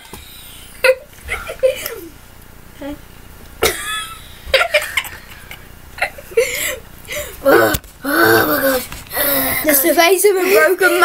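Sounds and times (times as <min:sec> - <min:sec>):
boys laughing: 0:00.6 - 0:02.2, 0:03.6 - 0:11.0
pained wordless vocal noises: 0:07.4 - 0:09.7.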